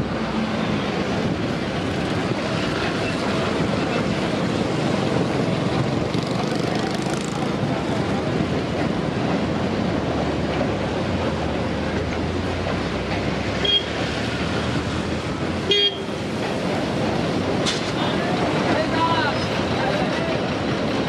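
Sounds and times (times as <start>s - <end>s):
steady rushing noise: 0.0s - 21.0s
horn toots: 15.7s - 16.1s.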